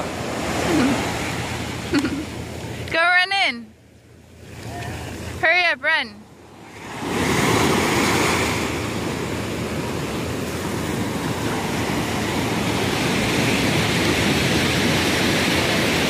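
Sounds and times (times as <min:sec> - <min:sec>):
ocean surf breaking on sand: 0:00.0 - 0:02.8, 0:06.3 - 0:16.0.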